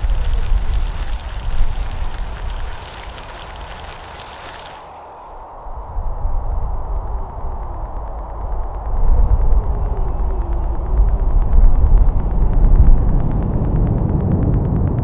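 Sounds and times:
hiss: 0.0 - 12.4
insects chirping: 0.0 - 12.4
low rumble: 5.4 - 15.0.

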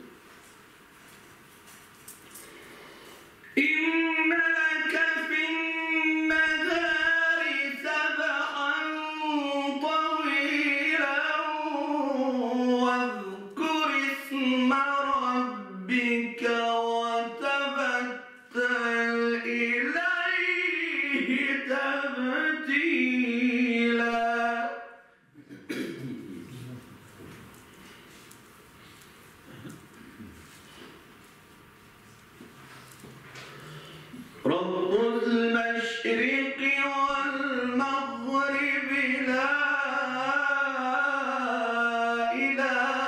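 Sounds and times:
man reciting melodically: 3.4 - 25.1, 33.8 - 43.0.

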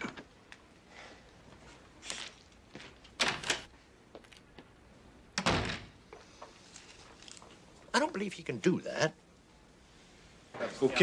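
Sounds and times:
door closing thud: 5.4 - 5.9.

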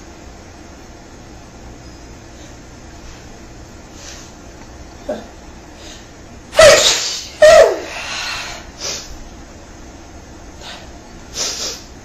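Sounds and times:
woman sneezing: 6.6 - 7.9.

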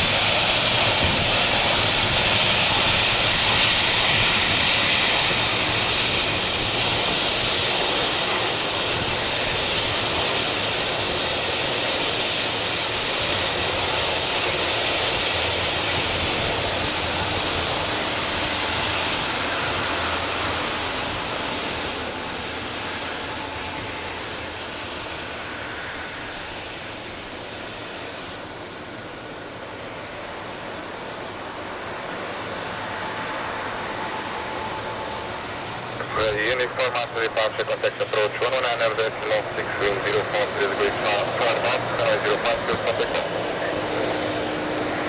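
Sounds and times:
jet engine hiss and whine: 0.0 - 45.0.

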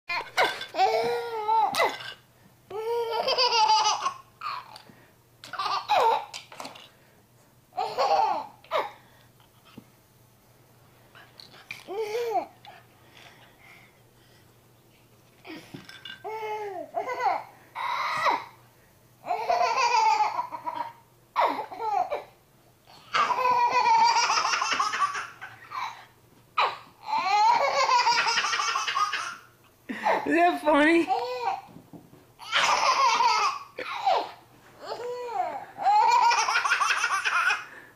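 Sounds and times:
baby laughing: 2.8 - 4.8, 5.5 - 6.4, 7.8 - 8.9, 19.3 - 22.3, 23.0 - 30.2, 32.4 - 37.7.

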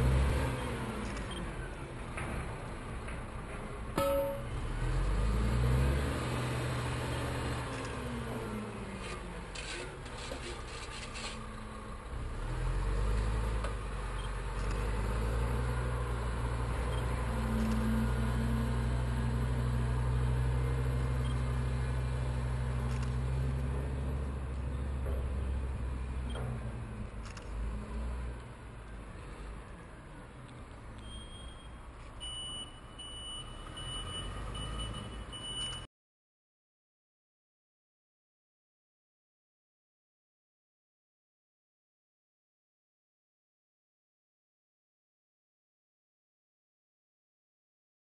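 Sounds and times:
dump truck diesel engine revving: 0.0 - 1.1, 4.5 - 8.9, 11.4 - 28.4, 33.1 - 35.6.

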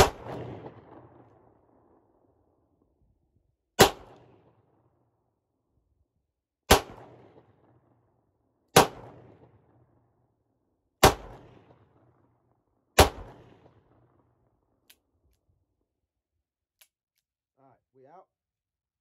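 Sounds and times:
revolver gunshots with echo: 0.0 - 1.3, 3.8 - 4.8, 6.7 - 7.9, 8.7 - 10.0, 11.0 - 12.2, 13.0 - 14.1.

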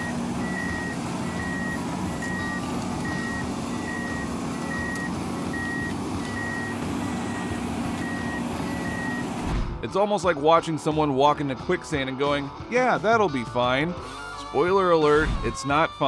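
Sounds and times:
machine travel alarm beeping: 0.0 - 9.4
diesel engine droning: 0.0 - 10.1.

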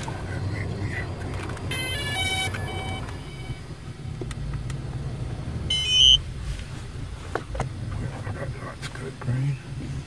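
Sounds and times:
car cabin rumble: 0.0 - 10.0
electronic beeps: 1.7 - 3.7, 5.7 - 6.2.

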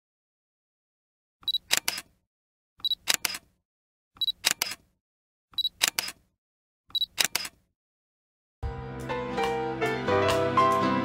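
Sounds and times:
camera autofocus beep: 1.4 - 2.0, 2.8 - 3.4, 4.2 - 4.8, 5.6 - 6.2, 6.9 - 7.5
camera mirror and shutter clack: 1.4 - 2.1, 2.8 - 3.5, 4.2 - 4.9, 5.6 - 6.3, 6.9 - 7.6.

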